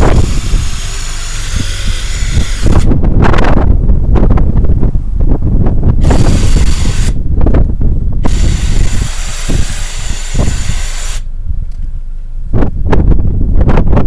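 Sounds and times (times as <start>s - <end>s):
power saw cutting mattress: 0.0s - 2.9s, 6.0s - 7.2s, 8.3s - 11.2s
wind buffeting microphone: 0.0s - 14.0s.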